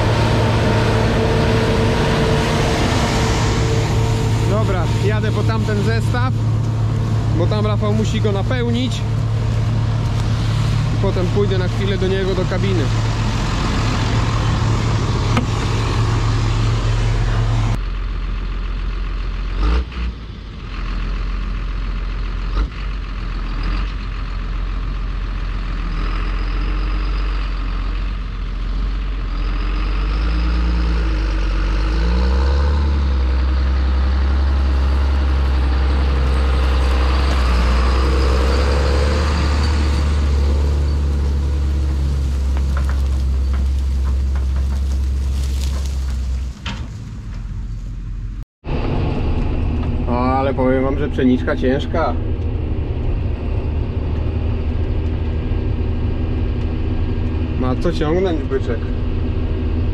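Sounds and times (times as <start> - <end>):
loud rushing noise: 0.0 - 8.4
combine harvester engine drone: 0.0 - 59.9.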